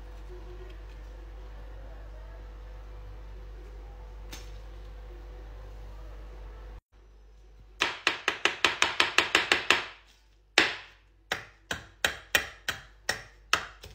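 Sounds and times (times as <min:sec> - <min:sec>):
knife chopping on countertop: 0:07.8 - 0:13.9.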